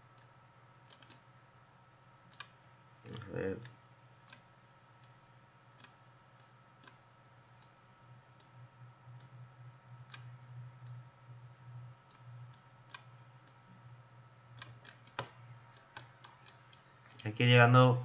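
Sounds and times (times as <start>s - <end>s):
faint low steady hum: 0.0s - 18.0s
computer mouse clicking: 0.2s - 1.3s, 2.3s - 7.0s, 10.0s - 11.0s, 12.1s - 13.7s, 14.5s - 17.2s.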